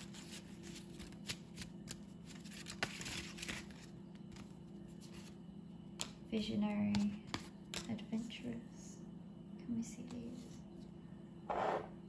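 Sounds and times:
cards being shuffled: 0:00.0 - 0:05.4.

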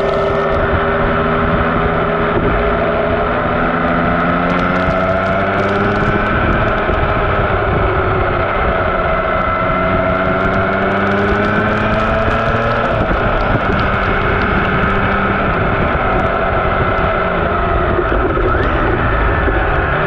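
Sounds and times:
motorcycle engine running: 0:00.0 - 0:20.0
wind noise on microphone: 0:00.0 - 0:20.0.

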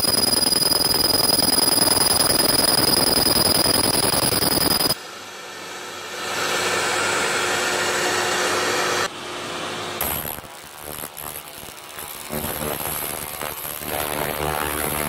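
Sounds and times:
laser cleaner crackling buzz: 0:00.0 - 0:05.0, 0:10.0 - 0:15.0.

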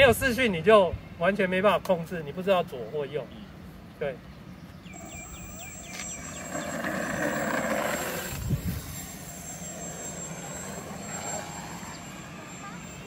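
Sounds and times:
model airplane propeller motor: 0:06.2 - 0:13.0.

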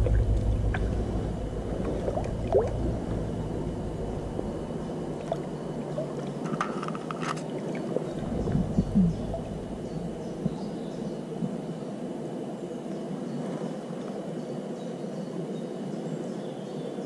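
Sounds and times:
low rumble: 0:00.0 - 0:06.8, 0:07.8 - 0:11.9
stream water splashing: 0:00.0 - 0:12.0.

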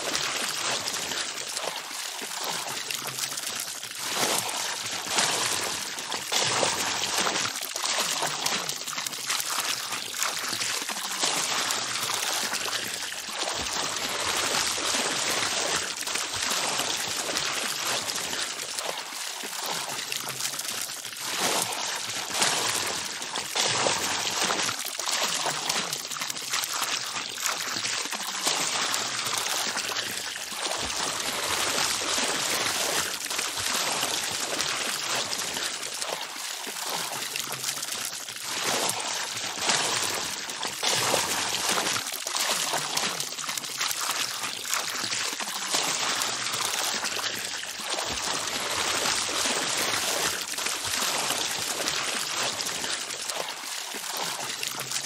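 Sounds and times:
water running and splashing: 0:00.0 - 0:55.0.

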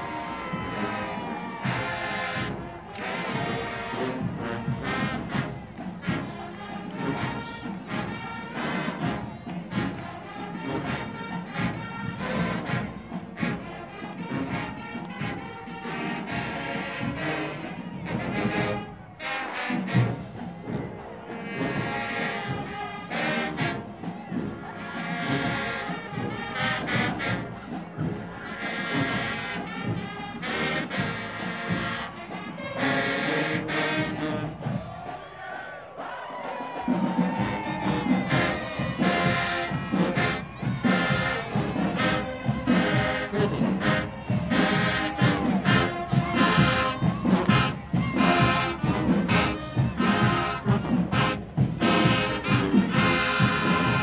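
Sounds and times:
marching band playing: 0:00.0 - 0:54.0.

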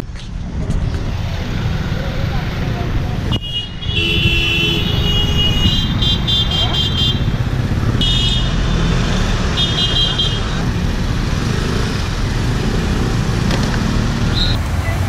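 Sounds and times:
vehicle horn fast beeping: 0:03.3 - 0:07.3.

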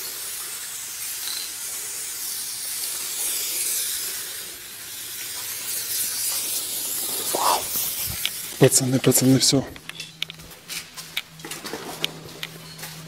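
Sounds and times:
spray paint can hissing: 0:00.0 - 0:08.6.

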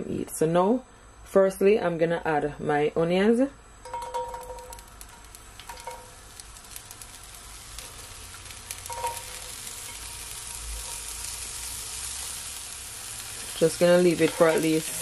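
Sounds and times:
onion sizzling in hot oil: 0:03.8 - 0:15.0.

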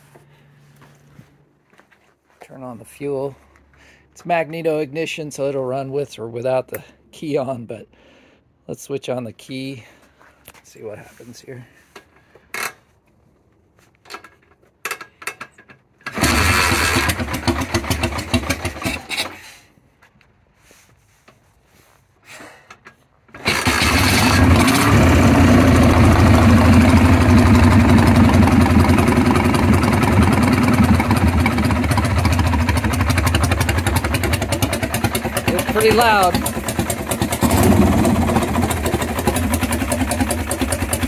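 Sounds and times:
motorcycle engine starting and running: 0:16.0 - 0:19.4, 0:23.3 - 0:41.0.

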